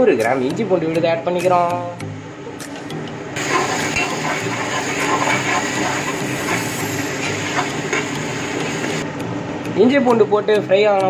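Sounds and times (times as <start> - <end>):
paste sizzling in hot oil: 3.4 - 9.0.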